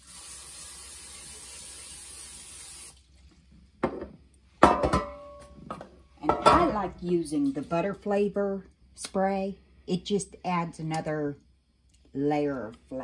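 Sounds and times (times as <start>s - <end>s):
aerosol spray hissing: 0.0s - 3.0s
knocks on metal pan: 3.8s - 5.4s.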